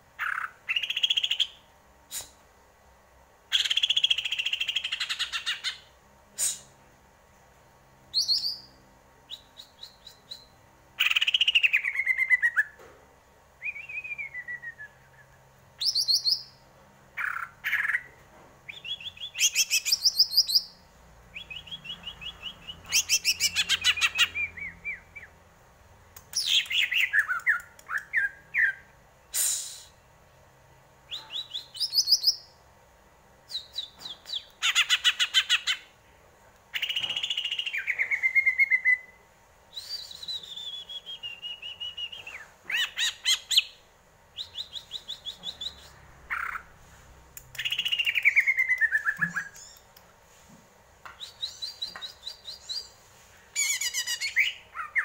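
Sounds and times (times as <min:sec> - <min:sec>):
bird singing trills and whistles: 0:08.1 - 0:12.8, 0:13.6 - 0:16.6, 0:18.7 - 0:25.4, 0:31.1 - 0:32.5, 0:36.7 - 0:39.2, 0:39.8 - 0:43.8, 0:44.4 - 0:46.7, 0:47.6 - 0:49.9, 0:51.2 - 0:53.0, 0:53.6 - 0:55.0.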